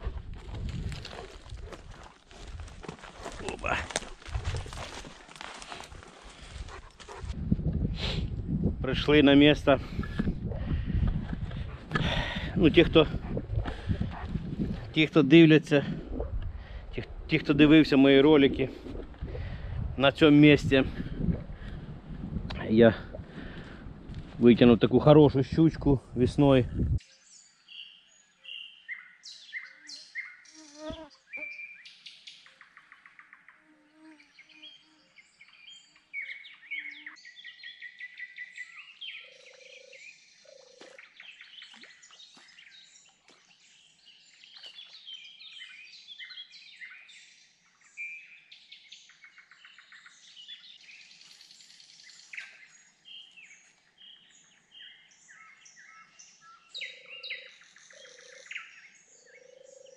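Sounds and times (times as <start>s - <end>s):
songbirds singing in chorus: 27.0s - 59.9s.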